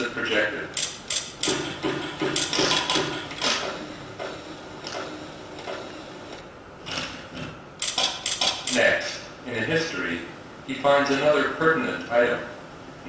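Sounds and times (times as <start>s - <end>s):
machine clicking and clunking: 0.8s - 8.8s.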